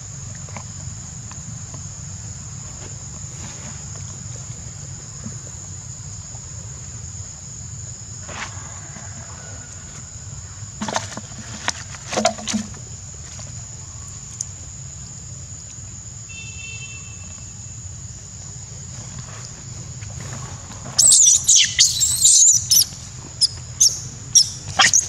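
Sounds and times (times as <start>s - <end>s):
high-pitched insect drone: 20.9s - 25.0s.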